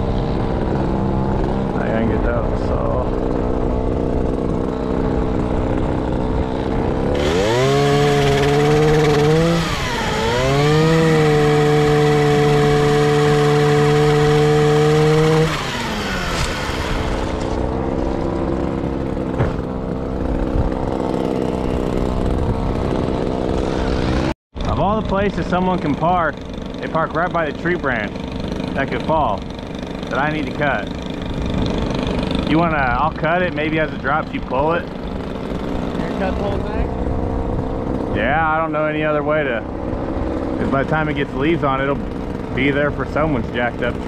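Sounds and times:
pole saw engine revving: 0.0s - 44.0s
chain cutting branch: 3.2s - 24.3s.

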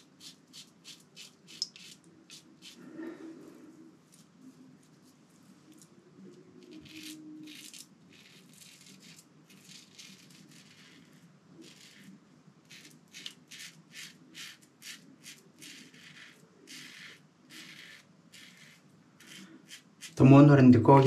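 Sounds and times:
razor scraping stubble: 6.6s - 20.2s.

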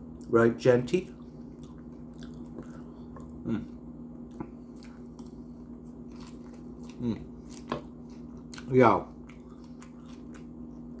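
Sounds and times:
steady low hum: 0.0s - 11.0s
crunchy chewing: 1.0s - 11.0s
low voice sounds: 3.4s - 3.8s.

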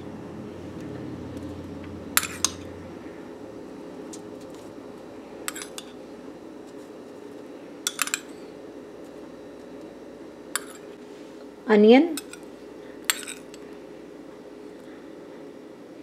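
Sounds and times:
low hum: 0.0s - 6.5s.

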